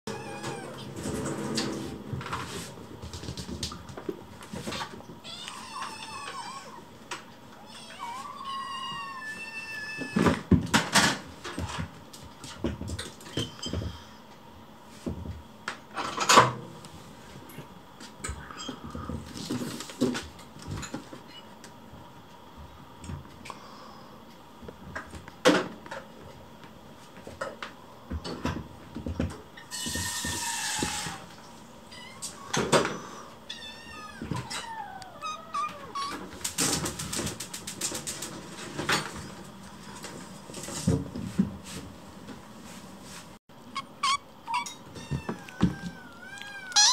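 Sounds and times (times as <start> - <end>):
knocks clatters and rustles: 0.2 - 5.2, 36.0 - 42.5
kitten meowing: 43.8 - 46.9.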